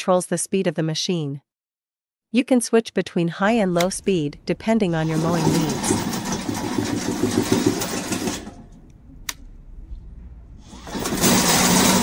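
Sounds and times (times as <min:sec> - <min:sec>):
electric track drive running: 0:03.6 - 0:09.0, 0:10.6 - 0:12.0.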